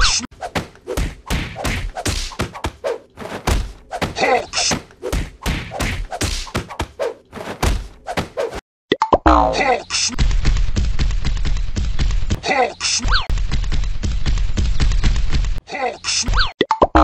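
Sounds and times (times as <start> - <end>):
cartoon punching thuds and whacks: 0.5 - 8.6.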